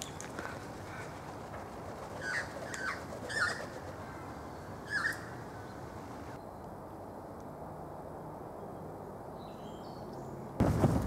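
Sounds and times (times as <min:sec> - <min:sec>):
magpies calling: 0:02.2 - 0:05.7.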